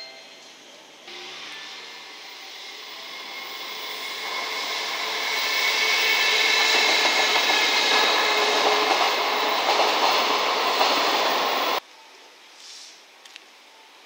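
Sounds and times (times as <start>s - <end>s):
freight train rolling past: 1.1s - 11.8s
wheels squealing: 1.1s - 11.8s.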